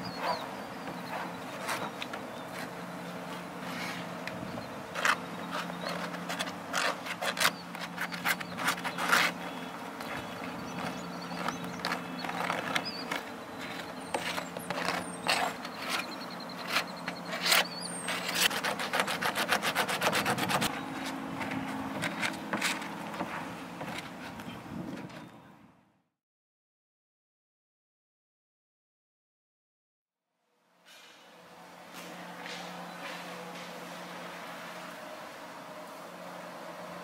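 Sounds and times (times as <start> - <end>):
stick scraping over sheet: 5.0 - 9.5, 10.8 - 22.9.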